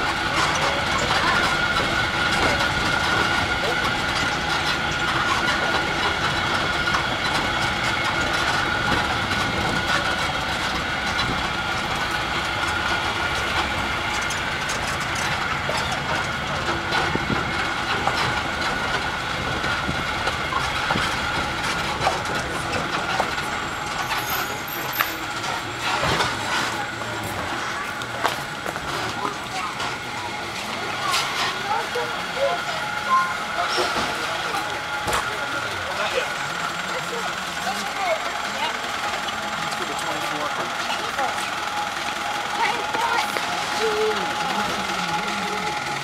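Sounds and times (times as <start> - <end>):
rattles and knocks: 0.0 - 31.6
tram engine drone: 0.0 - 46.0.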